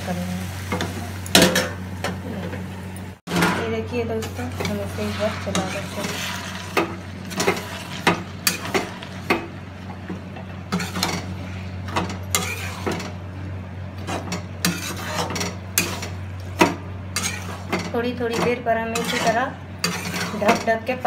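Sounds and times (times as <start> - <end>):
ladle scraping metal pan: 4.2 - 9.1, 12.3 - 13.1, 14.1 - 16.2, 17.1 - 20.7.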